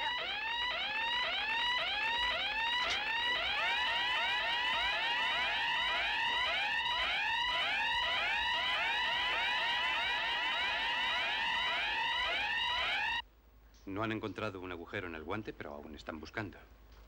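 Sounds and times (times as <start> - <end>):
electronic whooping alarm: 0.0 - 13.2.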